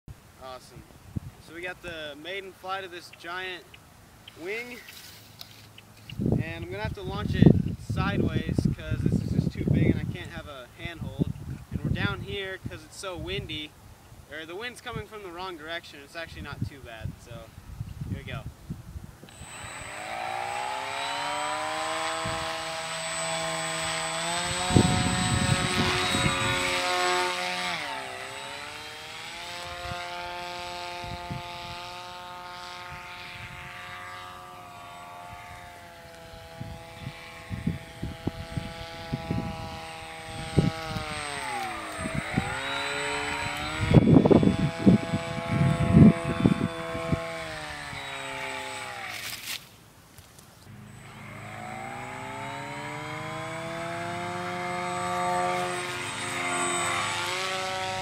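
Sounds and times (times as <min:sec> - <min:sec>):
wind rumble on microphone: 0:06.1 - 0:13.6, 0:16.4 - 0:19.3, 0:24.4 - 0:26.9, 0:36.4 - 0:41.2, 0:42.0 - 0:47.3
electric motor propeller whining: 0:19.2 - 0:49.6, 0:50.7 - 0:58.0.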